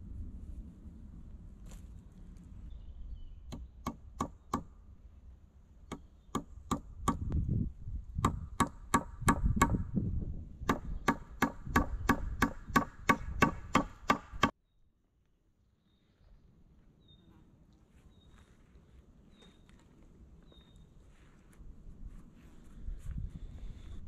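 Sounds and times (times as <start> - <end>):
hatchet chopping wood: 3.5 - 4.7, 5.9 - 7.4, 8.2 - 9.8, 10.6 - 14.6.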